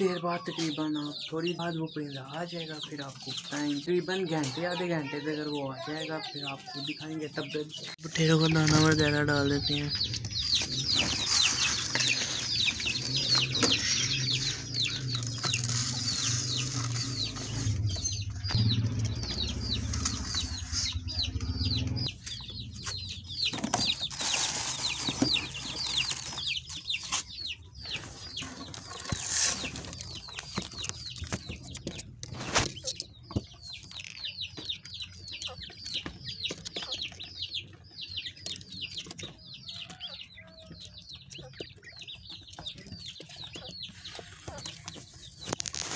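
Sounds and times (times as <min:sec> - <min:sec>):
small birds chirping: 0:00.0 - 0:45.9.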